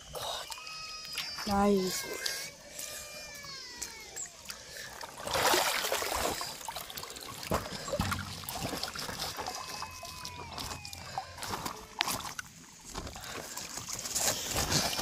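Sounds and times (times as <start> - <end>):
splashing in shallow water: 4.3 - 15.0
knocks: 8.0 - 8.8.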